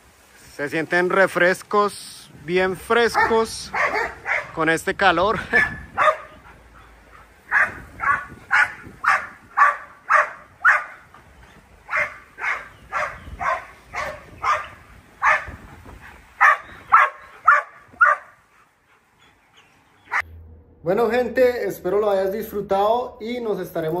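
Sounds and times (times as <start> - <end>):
dog barking: 3.1 - 4.6, 5.6 - 6.5, 7.5 - 11.1, 11.9 - 15.6, 16.4 - 18.4.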